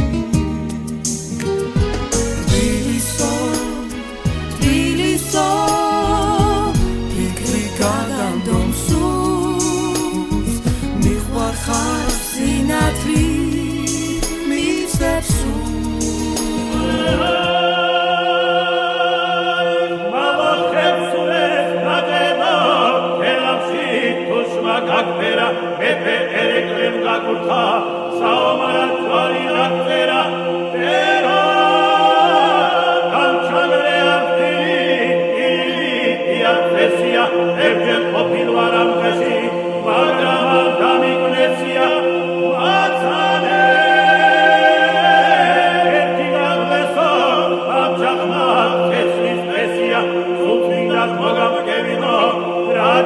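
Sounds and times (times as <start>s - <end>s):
choir singing in parts: 0.0s - 53.0s.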